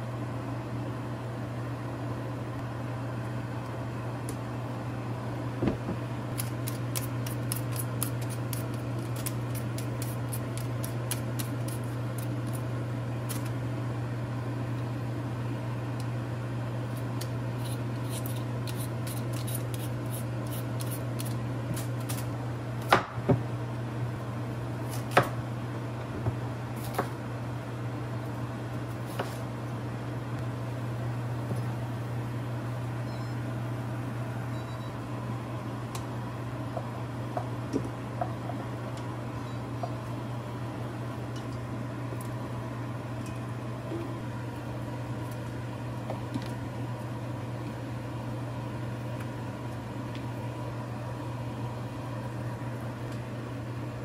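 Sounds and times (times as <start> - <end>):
steady low hum: 0.0 - 54.0
peeler scraping potato: 17.0 - 21.4.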